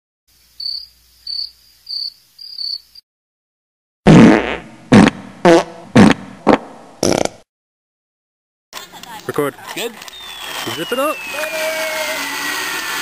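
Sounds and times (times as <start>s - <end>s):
cricket chirping: 0.3s - 3.0s
fart sounds: 4.0s - 7.5s.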